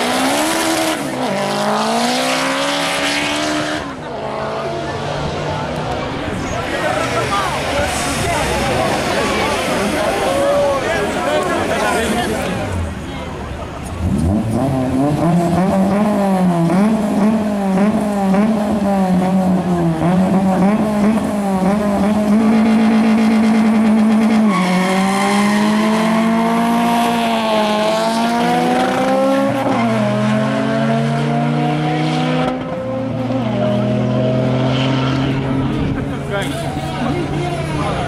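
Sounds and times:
car engine revving: 0:00.0 - 0:13.0, 0:13.6 - 0:38.0
tyre squeal: 0:24.3 - 0:25.2.

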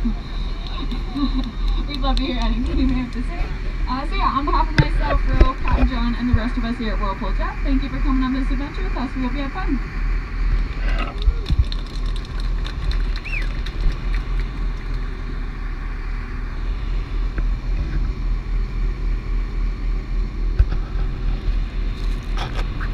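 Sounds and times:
boat engine running: 0:00.0 - 0:22.9.

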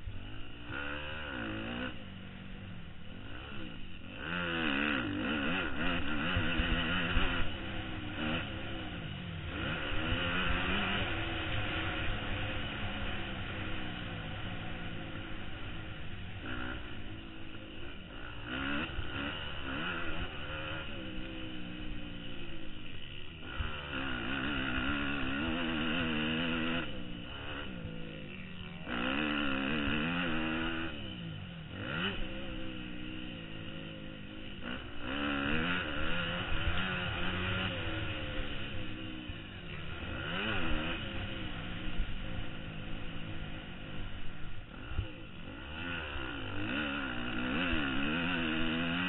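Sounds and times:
dirt bike engine revving: 0:00.0 - 0:49.0.

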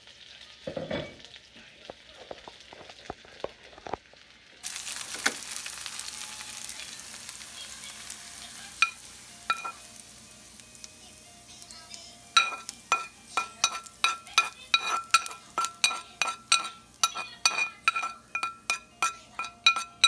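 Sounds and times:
metal spoon tapping frying pan: 0:08.8 - 0:09.9, 0:12.4 - 0:20.0.

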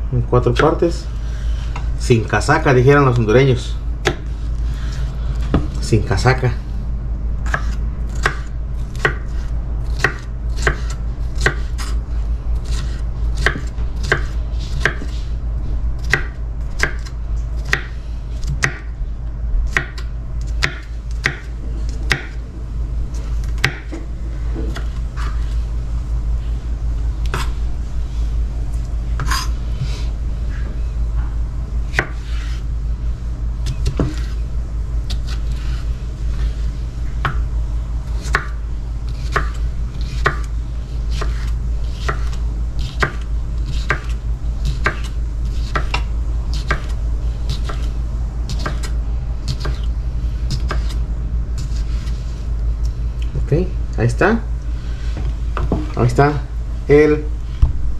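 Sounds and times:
knife chopping on wooden board: 0:04.0 - 0:04.3, 0:07.4 - 0:12.0, 0:12.6 - 0:15.2, 0:16.0 - 0:18.9, 0:19.7 - 0:21.5, 0:22.1 - 0:22.4, 0:23.4 - 0:25.4, 0:29.2 - 0:29.9, 0:31.9 - 0:32.6, 0:33.6 - 0:34.4, 0:38.2 - 0:38.6, 0:39.2 - 0:40.5, 0:41.1 - 0:47.9, 0:48.5 - 0:49.9, 0:50.5 - 0:51.0.

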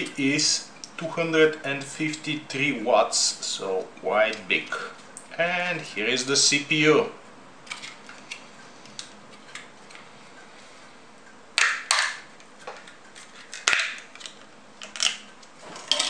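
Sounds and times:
plastic tray snapping and crackling: 0:11.6 - 0:12.3, 0:13.5 - 0:16.0.

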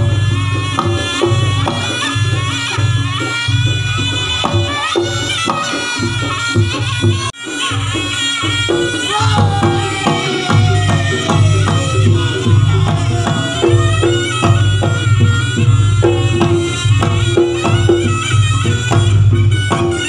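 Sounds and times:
reedy shawm melody: 0:00.0 - 0:20.0
hand drumming: 0:08.7 - 0:20.0
gong strokes: 0:09.1 - 0:15.0.

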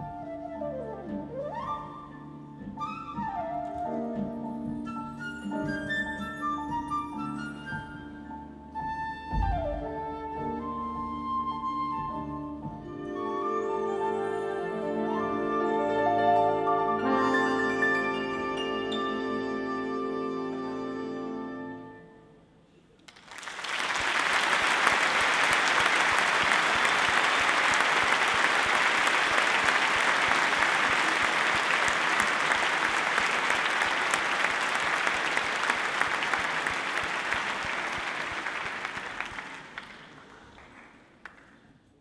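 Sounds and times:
audience applauding: 0:23.1 - 0:41.6.

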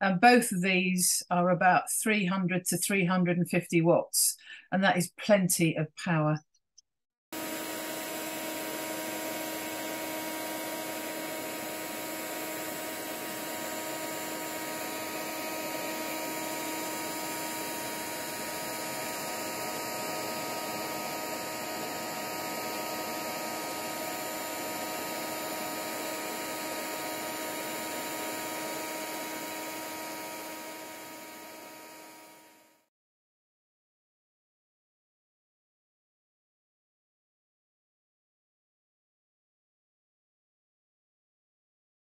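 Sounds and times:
heat gun blowing air: 0:07.4 - 0:32.6.

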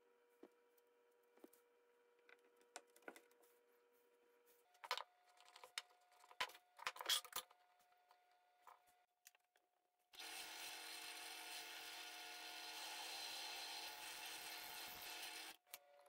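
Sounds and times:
drill press boring into wood: 0:10.2 - 0:15.6.

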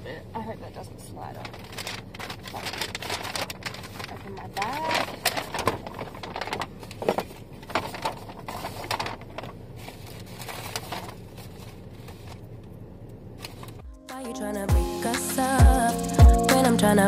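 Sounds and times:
paper bag crinkling: 0:01.4 - 0:12.4.

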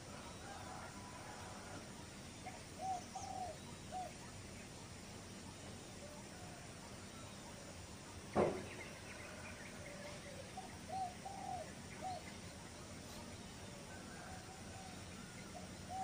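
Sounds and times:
birds calling: 0:00.0 - 0:16.0
steady background hiss: 0:00.0 - 0:16.0
loud thump: 0:08.3 - 0:08.8.

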